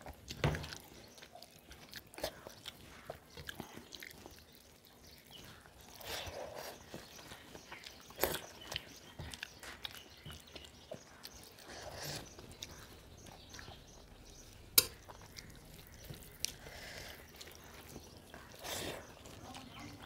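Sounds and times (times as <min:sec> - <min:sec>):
chewing and mouth smacking: 0:00.0 - 0:20.0.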